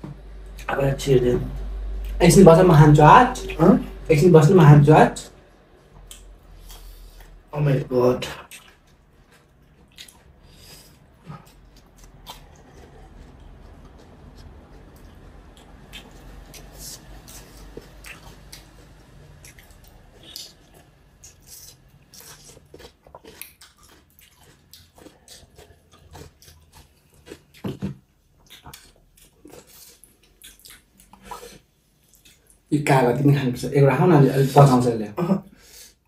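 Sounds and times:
chewing: 5.8 - 7.5, 8.2 - 32.7.

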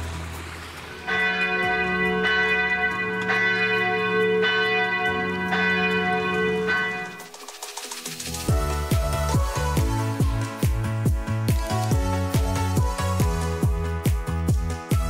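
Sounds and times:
church bells ringing: 0.8 - 7.4.

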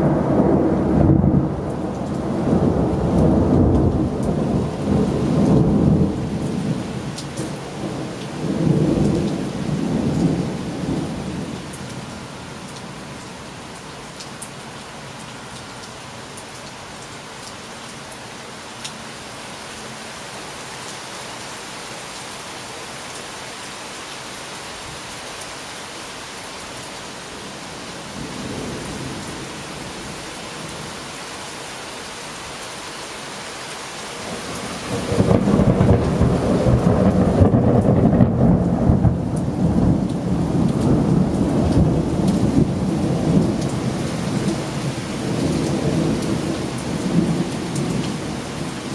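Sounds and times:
thunder rumbling: 0.0 - 11.5, 34.3 - 48.9
steady rain: 0.0 - 48.9.

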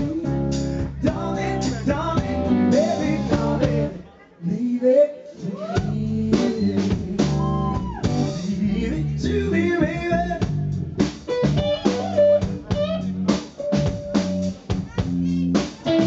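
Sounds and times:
blues rock band playing: 0.0 - 4.0, 6.3 - 16.0
drum hits: 10.4 - 16.0.

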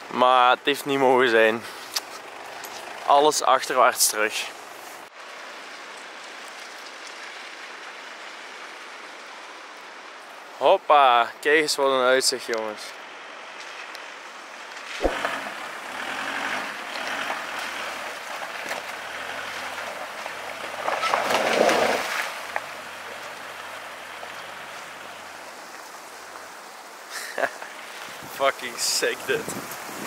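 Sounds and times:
gravel crunching: 0.0 - 30.0
wind: 0.0 - 30.0
suv engine running: 1.5 - 5.0, 15.0 - 26.5
sharp knock: 15.0 - 15.4.

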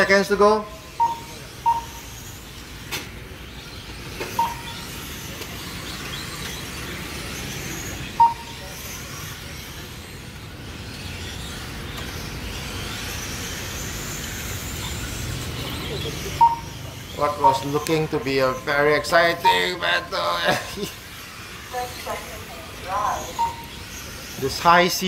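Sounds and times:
model truck motors whirring: 0.0 - 25.0
short high beeps: 0.6 - 2.1, 4.4 - 4.8, 8.2 - 8.6, 16.4 - 17.8, 19.2 - 20.1, 23.3 - 23.8.

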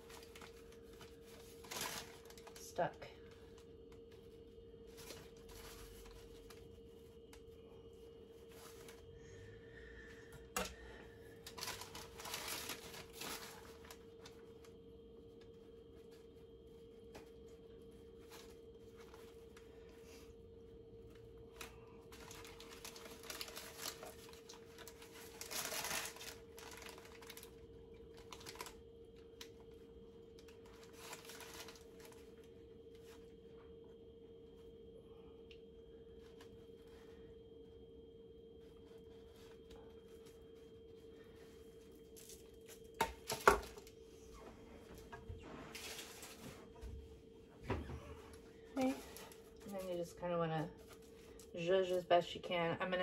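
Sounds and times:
parchment paper crinkling: 0.0 - 9.1, 11.2 - 33.6, 38.4 - 43.9
faint hum: 0.0 - 53.0.

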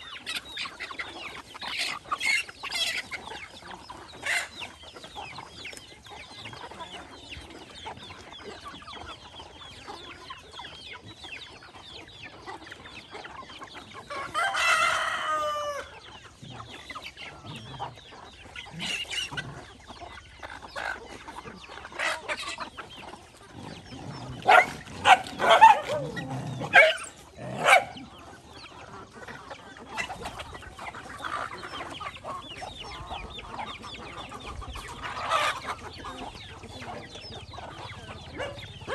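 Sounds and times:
chickens clucking: 0.0 - 38.9
rooster crowing: 14.3 - 15.9.

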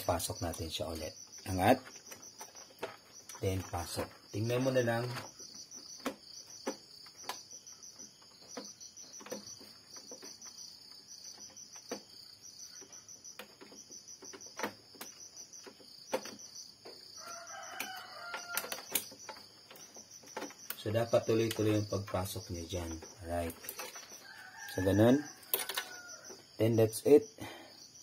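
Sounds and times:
plastic printer parts clicking: 17.6 - 26.0.

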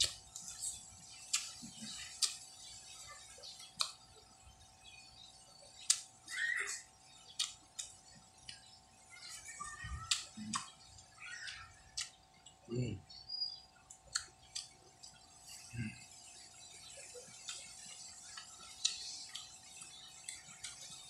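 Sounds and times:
wet mouth clicks and smacks: 0.0 - 2.5, 3.7 - 4.0, 5.8 - 6.1, 7.4 - 8.6, 10.1 - 10.7, 11.5 - 12.6, 13.9 - 15.2, 17.4 - 21.0.

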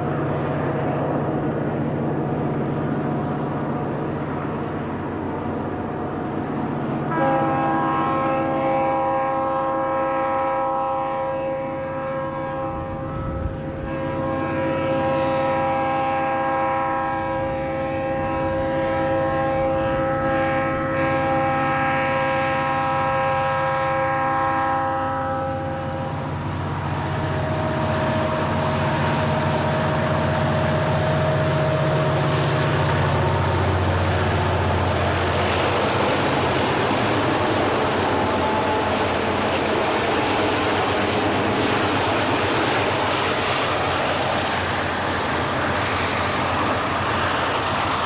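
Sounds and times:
diesel locomotive engine drone: 0.0 - 48.0
multi-note train air horn: 7.1 - 41.7.

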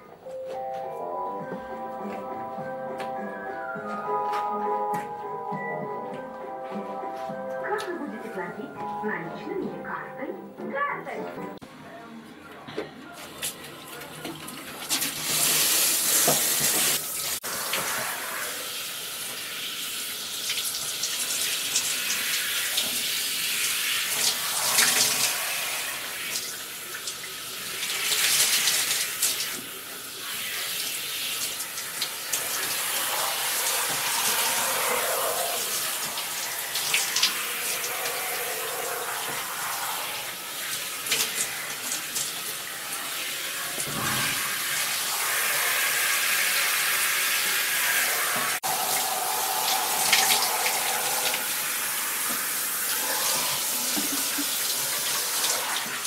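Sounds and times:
shower spraying water: 13.2 - 56.0.

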